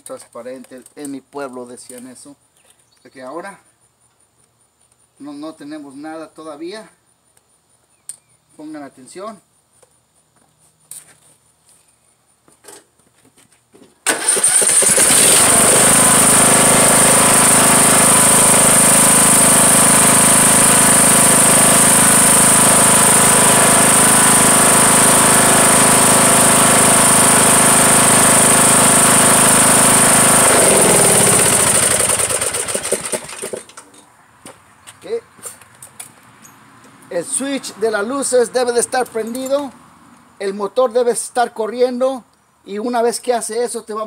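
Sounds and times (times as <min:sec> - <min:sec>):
lawn tractor engine running: 0:14.0 - 0:34.0.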